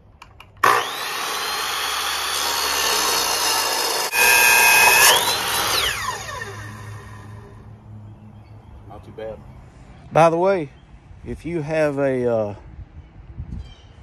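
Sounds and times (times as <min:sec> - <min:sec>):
blade grinding through steel tube: 0:00.6 - 0:07.4
chop saw motor whine: 0:00.6 - 0:07.6.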